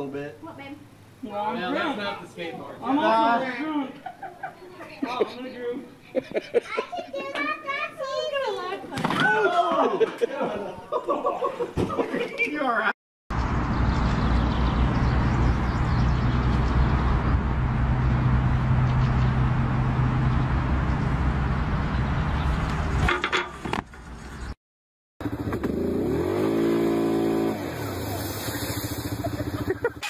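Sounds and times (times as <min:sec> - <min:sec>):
atv engine revving: 0:25.2 - 0:30.0.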